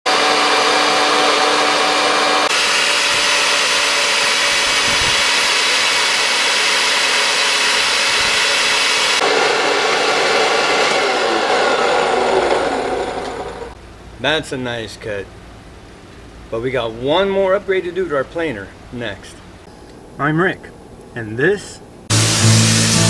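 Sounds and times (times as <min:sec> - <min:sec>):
thickness planer planing boards: 0:00.1 - 0:13.8.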